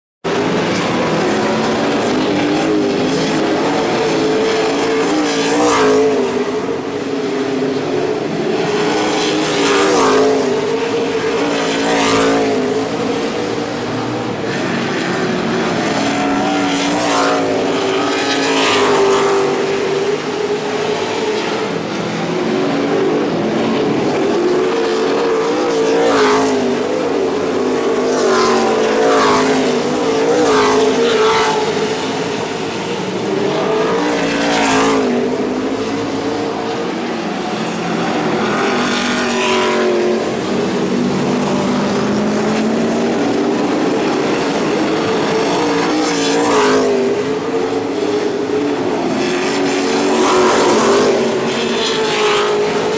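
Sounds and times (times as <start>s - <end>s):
race truck engines at speed: 0.2s - 52.9s
trucks passing close: 0.2s - 52.9s.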